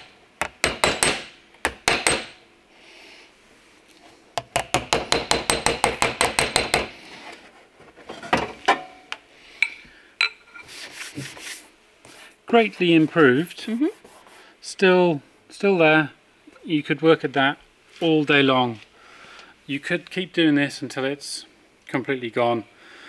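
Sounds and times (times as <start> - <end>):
hammer tapping on car door: 0.4 - 2.3, 4.4 - 6.9.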